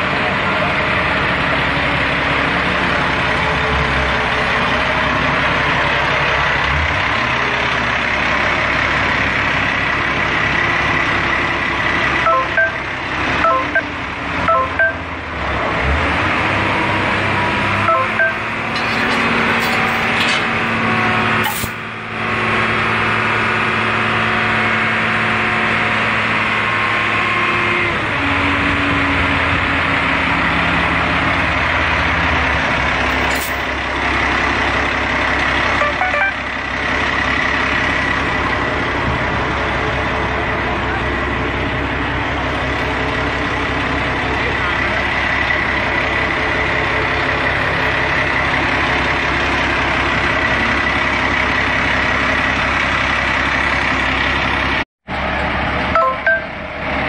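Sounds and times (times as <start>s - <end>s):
diesel forklift engine running: 0.0s - 57.0s
short electronic beeps: 12.3s - 15.1s, 17.8s - 18.5s, 35.8s - 36.4s, 56.0s - 56.6s.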